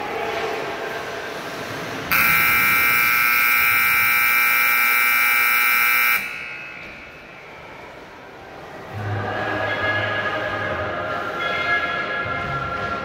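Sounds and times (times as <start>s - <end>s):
scoreboard horn blare: 2.1s - 6.3s.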